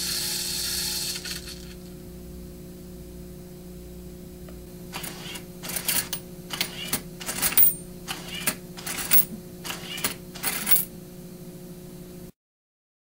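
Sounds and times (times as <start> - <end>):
steady low hum: 0.0 - 12.3
coins clattering: 5.0 - 7.9, 8.8 - 10.9.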